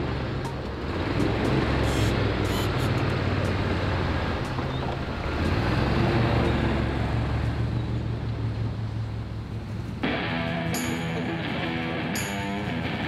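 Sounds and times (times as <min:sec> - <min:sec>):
rushing water wash: 0:00.0 - 0:10.0
boat motor humming: 0:00.0 - 0:12.6.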